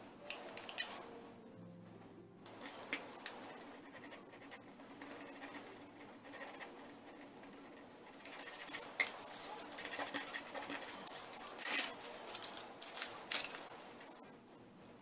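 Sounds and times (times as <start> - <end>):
paper rustling: 8.6 - 14.2
paper crackles: 9.1 - 14.2.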